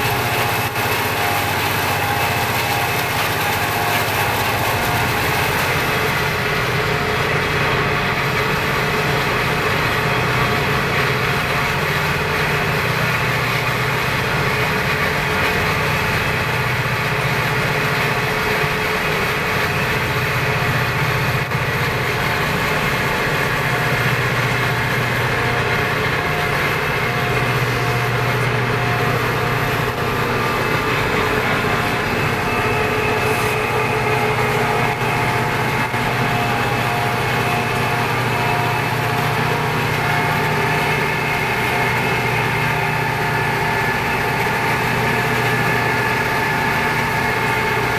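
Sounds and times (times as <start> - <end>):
diesel locomotive engines running: 0.0 - 47.9.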